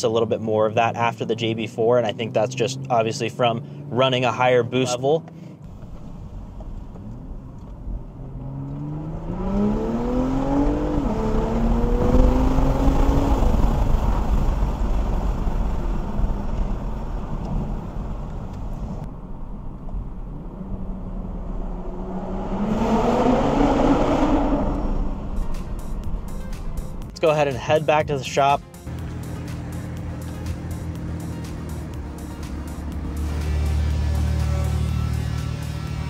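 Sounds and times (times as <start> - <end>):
car engine accelerating: 1.2 - 36.0
whooshing induction noise: 9.8 - 27.9.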